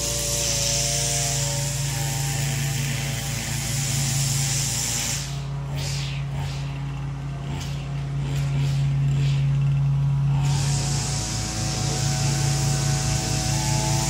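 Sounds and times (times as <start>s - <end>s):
hiss: 0.0s - 1.9s, 3.6s - 6.8s, 10.4s - 14.0s
small petrol engine humming: 0.0s - 14.0s.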